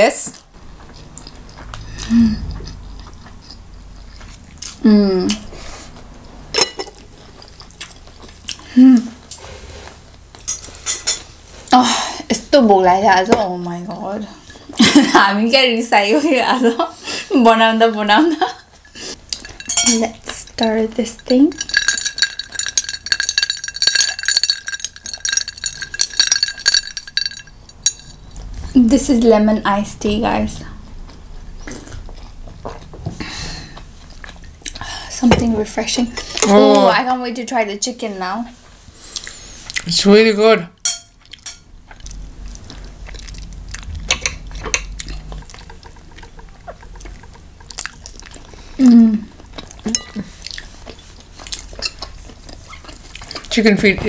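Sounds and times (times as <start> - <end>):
spoon clinking against glass: 19.4 - 20.1, 21.2 - 28.3, 40.8 - 41.6
chopsticks clicking against plates: 21.2 - 28.2.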